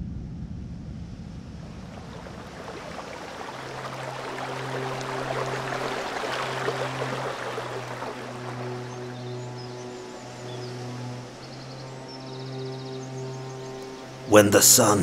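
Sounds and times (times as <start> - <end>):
deep rumble: 0.0 - 3.4
low musical drone: 0.0 - 15.0
stream water splashing over rocks: 1.8 - 9.8.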